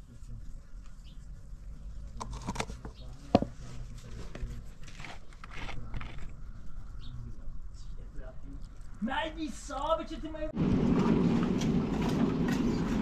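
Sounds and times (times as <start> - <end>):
plastic bottle cap crackling: 2.2 - 3.5.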